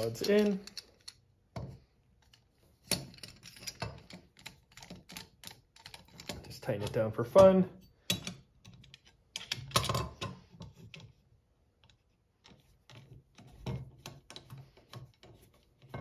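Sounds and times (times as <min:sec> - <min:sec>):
light metallic clicks and knocks: 0:00.0 - 0:11.2.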